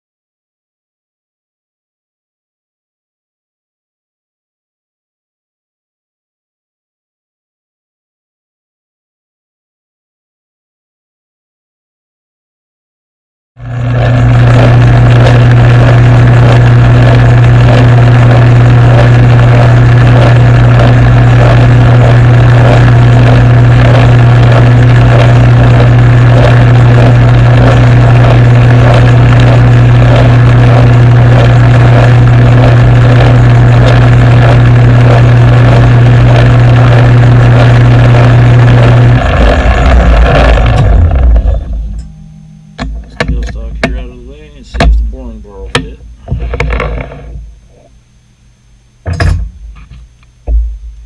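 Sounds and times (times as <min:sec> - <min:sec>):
lathe motor humming: 0:13.6 - 0:42.0
faint even pulsing: 0:13.6 - 0:48.1.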